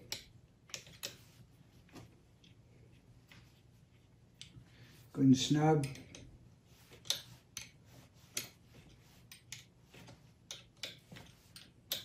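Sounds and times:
wrench clicking on nuts: 11.6s - 12.0s.

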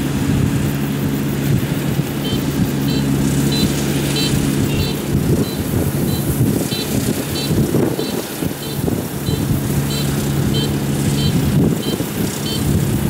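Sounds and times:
combine harvester engine running: 0.0s - 13.0s.

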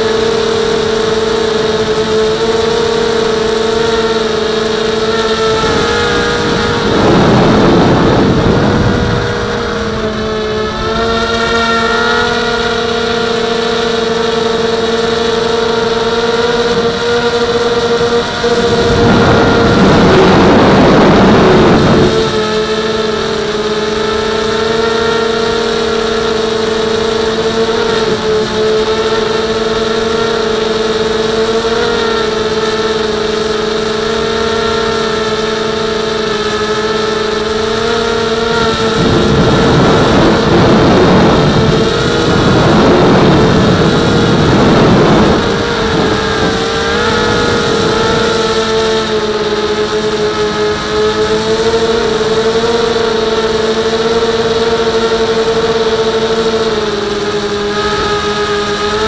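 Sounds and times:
quadcopter motors whining: 0.0s - 59.0s
rushing air noise: 4.7s - 12.8s, 17.6s - 22.5s.

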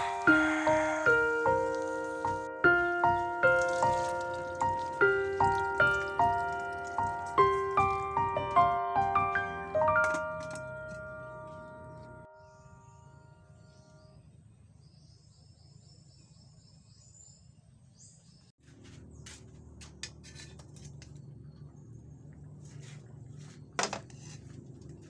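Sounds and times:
small birds chirping: 11.1s - 19.8s
low steady rumble of fire: 19.5s - 25.0s.

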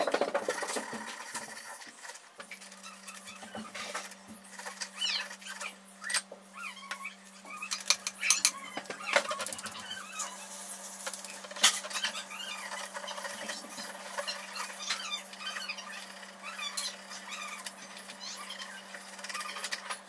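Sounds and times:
small squeaks: 0.5s - 20.0s.

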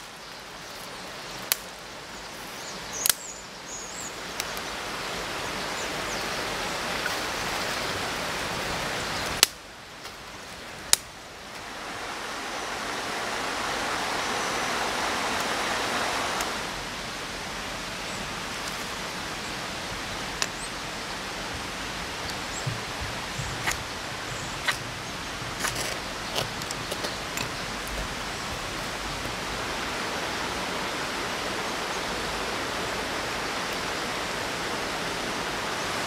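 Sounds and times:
stream running over rocks: 0.0s - 36.0s
dry twigs snapping: 1.4s - 1.7s, 3.0s - 3.3s, 9.3s - 11.1s.

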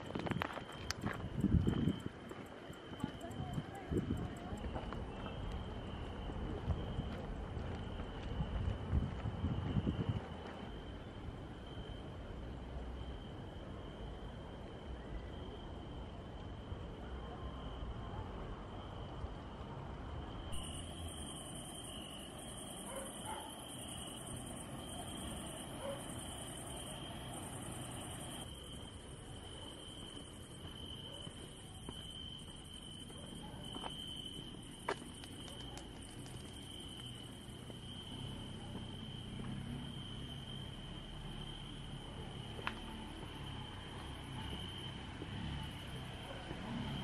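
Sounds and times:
high insect trill: 0.0s - 7.1s, 20.4s - 47.0s
wind rumble on microphone: 0.0s - 10.8s
distant dog barking: 22.8s - 23.8s, 25.6s - 26.3s.

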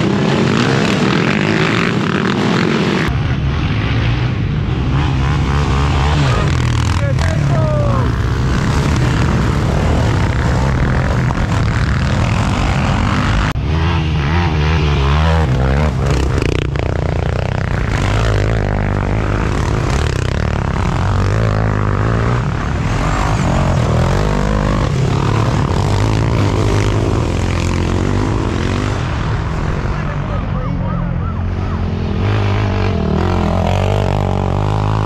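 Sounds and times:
quad engines revving: 0.0s - 35.0s.

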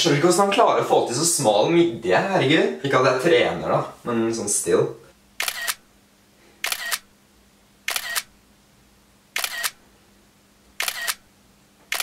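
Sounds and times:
camera shutter double click: 5.4s - 5.8s, 6.6s - 7.1s, 7.9s - 8.3s, 9.4s - 9.8s, 10.8s - 11.2s.

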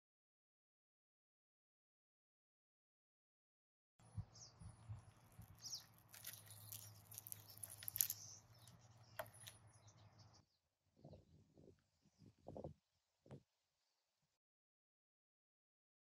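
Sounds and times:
birds chirping: 4.0s - 12.7s
orange peel crackling and popping: 5.0s - 9.8s.

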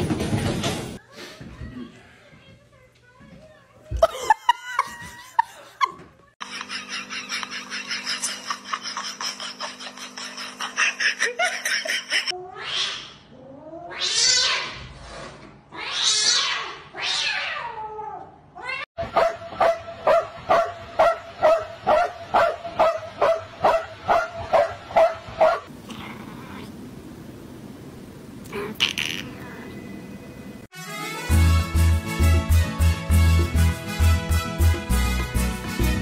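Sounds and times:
cat yowling: 12.4s - 14.8s.

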